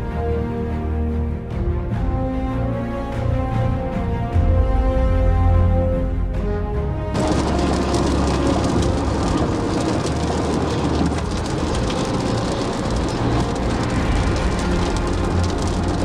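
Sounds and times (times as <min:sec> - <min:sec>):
tyres and engine rumble: 0:06.7 - 0:16.0
heavy rain on car windscreen: 0:07.1 - 0:16.0.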